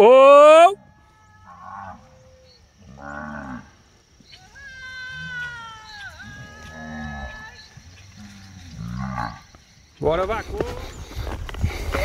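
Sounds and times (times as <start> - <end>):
cattle mooing: 1.3 - 3.8, 6.4 - 7.5, 8.1 - 9.5.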